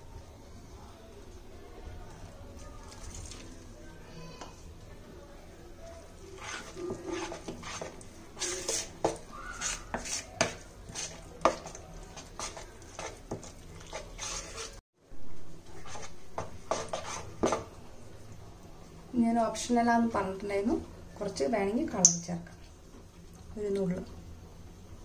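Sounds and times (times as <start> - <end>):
batter being stirred in a bowl: 1.2 - 4.7, 5.7 - 14.8, 15.6 - 17.8.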